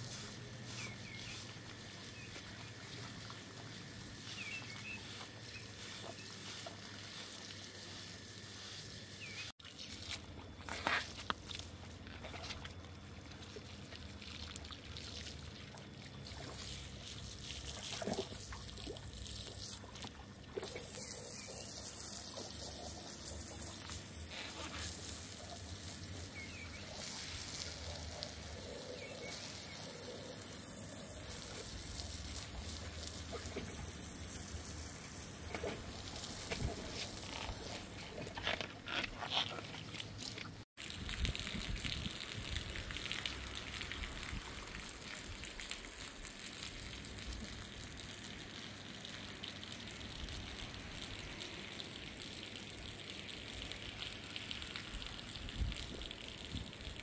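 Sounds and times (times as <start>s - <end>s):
hose water spraying on rug: 0.0s - 12.6s, 14.3s - 20.0s, 20.6s - 38.0s.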